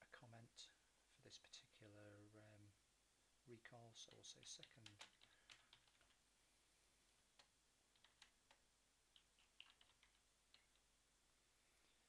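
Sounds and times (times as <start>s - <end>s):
faint keyboard typing: 3.9s - 6.2s, 7.3s - 10.9s.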